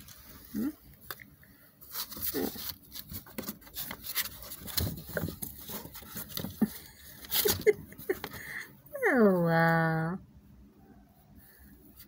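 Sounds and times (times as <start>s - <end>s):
kittens scratching on cardboard: 1.8s - 8.4s.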